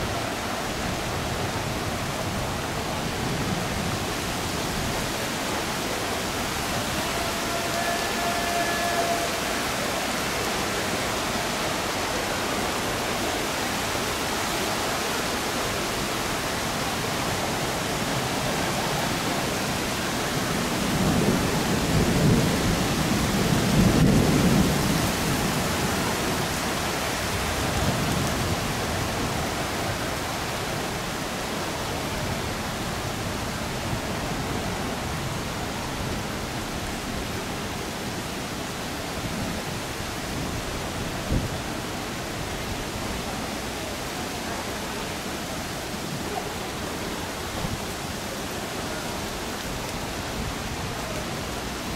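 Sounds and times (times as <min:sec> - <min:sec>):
heavy rain: 0:00.0 - 0:51.9
low rumble of thunder: 0:20.8 - 0:26.4.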